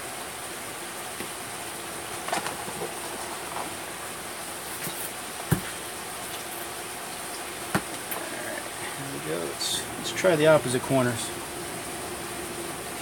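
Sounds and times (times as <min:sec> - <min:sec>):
steady background hiss: 0:00.0 - 0:13.0
dull thump: 0:05.5 - 0:05.7.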